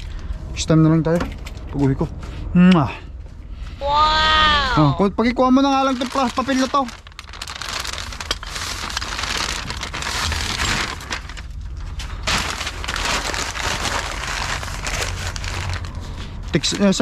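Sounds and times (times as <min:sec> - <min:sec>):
low steady rumble: 0:00.0 - 0:17.0
paper crinkling and rustling: 0:05.6 - 0:17.0.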